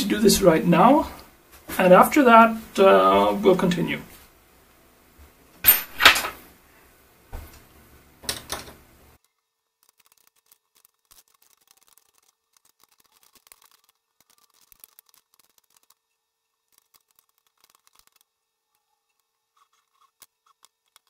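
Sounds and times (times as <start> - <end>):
metal tools knocking and clinking: 5.6 - 6.4.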